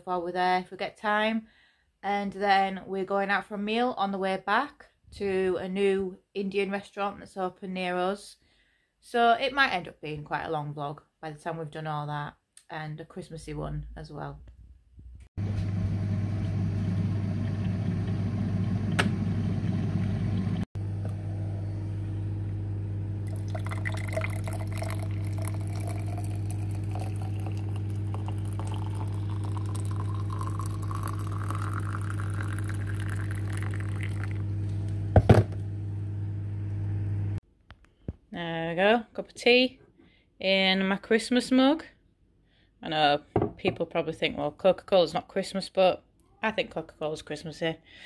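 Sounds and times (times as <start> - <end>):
hot water pouring into mug: 23.2 - 34.5.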